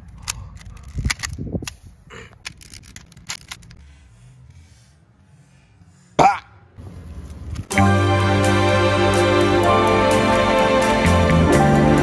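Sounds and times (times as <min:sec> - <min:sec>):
puzzle cube plastic clicks: 0:02.3 - 0:03.8.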